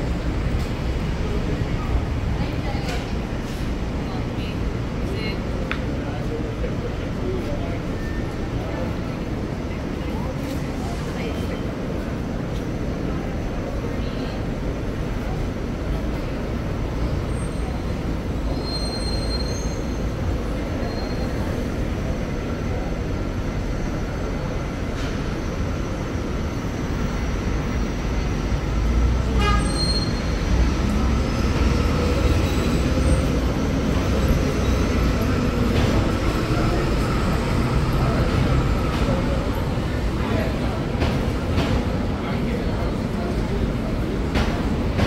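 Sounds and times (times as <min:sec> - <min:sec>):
heavy traffic rumble: 0:00.0 - 0:45.0
faint high squealing tones: 0:18.5 - 0:20.0.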